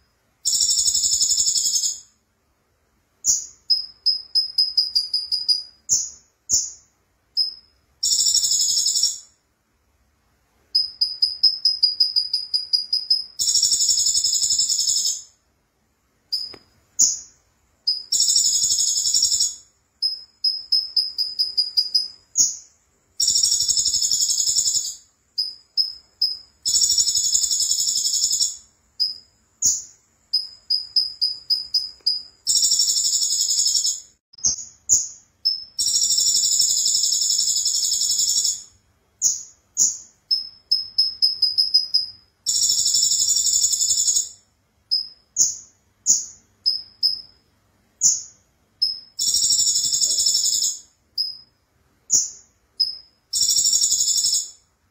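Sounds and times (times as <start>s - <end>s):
bird thin chirps: 3.2s - 9.2s.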